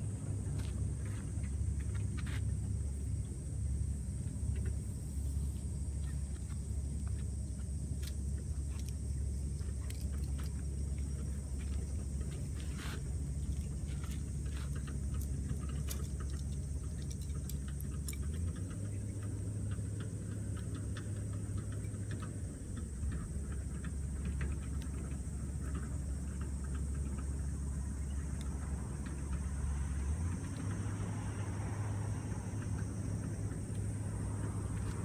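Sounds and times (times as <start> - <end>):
tent poles clicking and clinking: 6.1 - 26.5.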